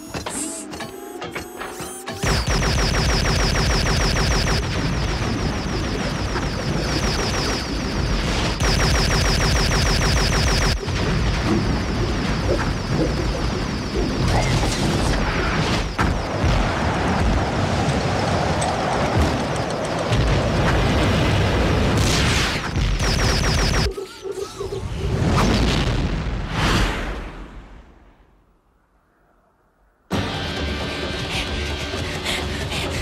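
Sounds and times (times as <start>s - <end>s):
cartoon turret energy shots: 2.2s - 17.8s, 20.3s - 24.0s
irregular blasts: 2.2s - 23.9s.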